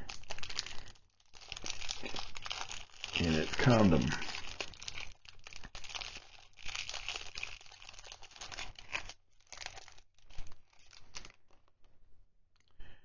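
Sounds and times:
plastic sleeve crinkling: 0.0 - 12.8.

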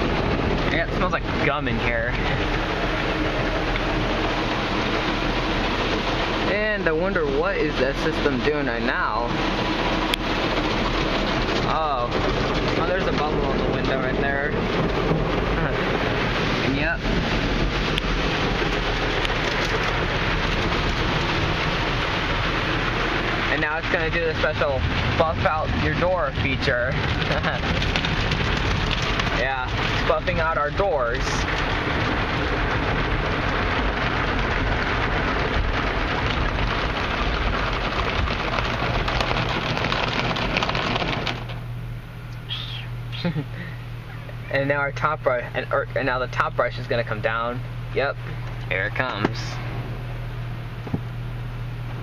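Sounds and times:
car wash brushes scrubbing: 0.0 - 41.6
water spraying over car: 0.0 - 52.0.

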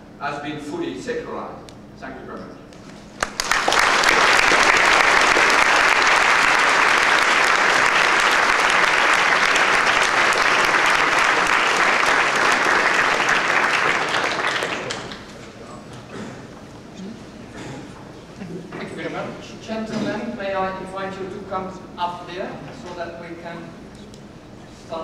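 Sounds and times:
audience applauding: 3.2 - 15.4.

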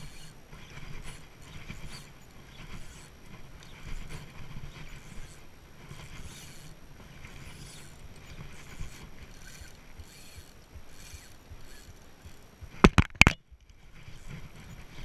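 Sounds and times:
fishing reel whirring: 0.0 - 12.9, 13.9 - 15.0
water: 0.0 - 15.0
wind: 0.0 - 15.0.

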